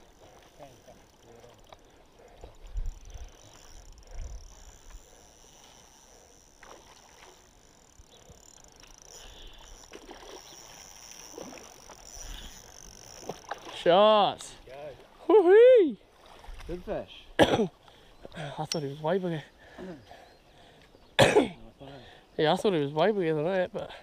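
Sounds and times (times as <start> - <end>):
water splashing and swirling: 0.0 - 15.3, 16.0 - 17.1.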